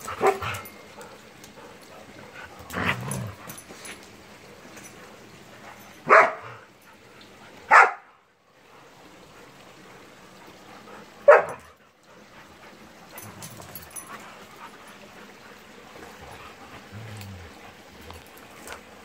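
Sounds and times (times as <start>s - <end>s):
dogs barking: 0.0s - 1.3s, 6.0s - 6.6s, 7.7s - 8.1s, 11.2s - 11.8s.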